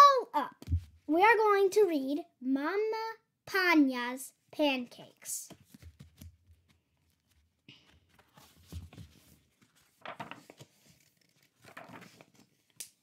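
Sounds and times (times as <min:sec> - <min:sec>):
paper pages rustling: 0:05.5 - 0:13.0.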